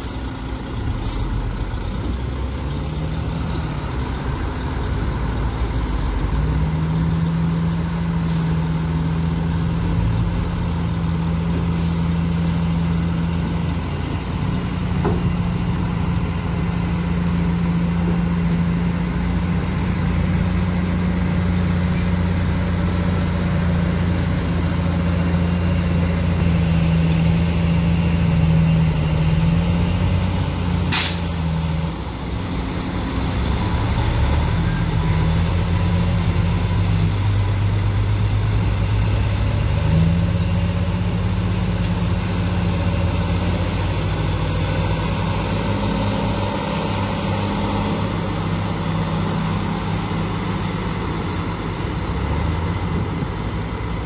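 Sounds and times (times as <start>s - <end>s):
diesel truck engine under load: 0.0s - 54.0s
short sharp hiss: 30.9s - 31.4s.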